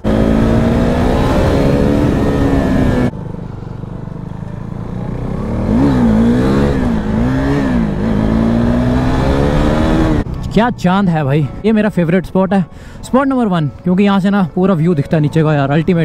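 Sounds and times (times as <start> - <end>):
motorcycle engine revving: 0.0 - 10.5.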